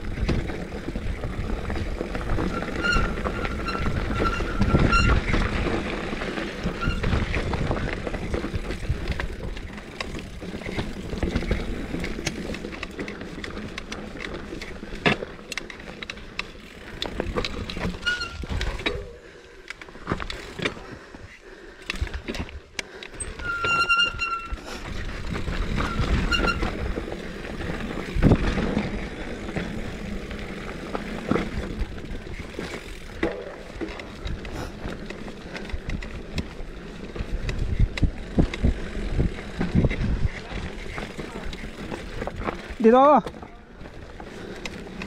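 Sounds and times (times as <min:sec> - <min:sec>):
bike rattling and knocking: 0:00.0 - 0:19.2, 0:21.8 - 0:45.0
disc brakes squealing: 0:02.3 - 0:05.4, 0:06.6 - 0:07.3, 0:17.9 - 0:18.6, 0:23.3 - 0:24.6, 0:25.8 - 0:26.8.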